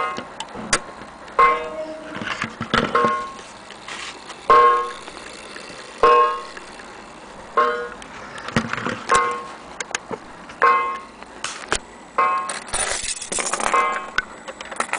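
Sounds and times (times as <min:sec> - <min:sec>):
clock striking wire gong: 0:01.4 - 0:02.1, 0:02.8 - 0:03.5, 0:04.4 - 0:08.0, 0:09.1 - 0:09.6.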